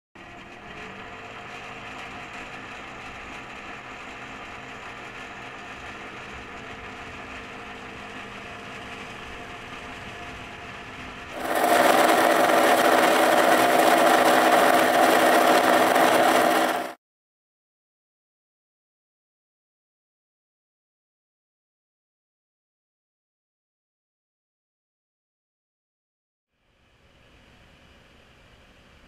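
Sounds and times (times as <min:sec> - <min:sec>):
slurry mixer humming: 0:11.4 - 0:17.0.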